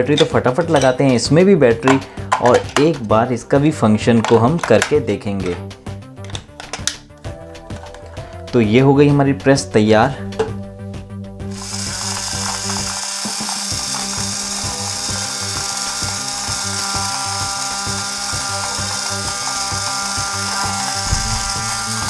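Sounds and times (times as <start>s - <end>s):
plastic beads rattling: 11.5s - 22.0s
small toy motor running: 11.5s - 22.0s.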